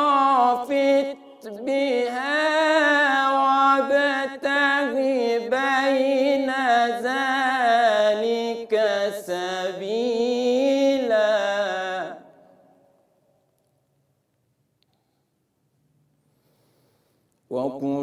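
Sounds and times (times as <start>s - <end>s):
man reciting melodically: 0.0s - 12.6s, 17.5s - 18.0s.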